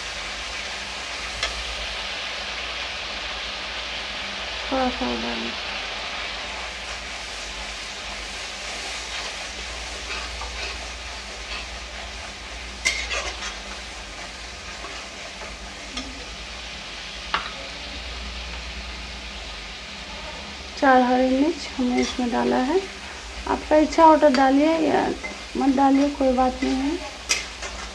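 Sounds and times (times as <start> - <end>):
paste sizzling in metal pan: 0.0 - 27.9
metal spatula scraping: 8.8 - 16.3, 21.8 - 22.6, 25.2 - 27.9.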